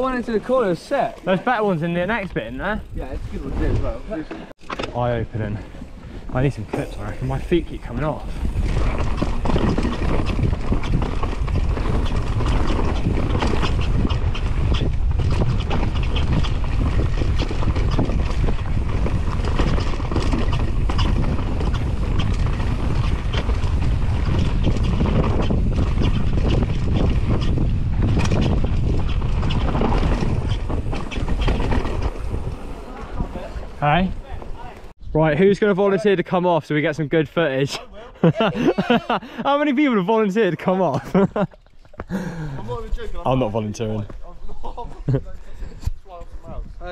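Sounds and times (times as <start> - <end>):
bike clicks and rattles: 0.0 - 35.0, 40.9 - 43.3
wind on camera microphone: 1.9 - 4.2, 5.0 - 35.4, 42.4 - 46.9.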